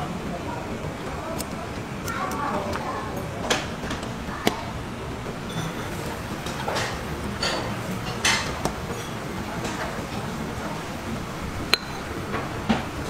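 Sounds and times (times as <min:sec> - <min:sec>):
dishes and utensils clinking: 0:05.2 - 0:13.0.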